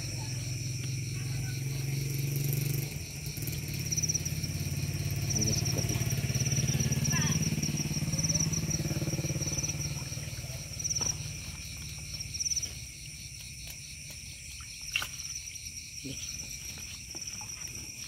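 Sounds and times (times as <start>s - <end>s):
low engine hum: 0.0s - 13.0s
crickets chirping: 0.0s - 18.0s.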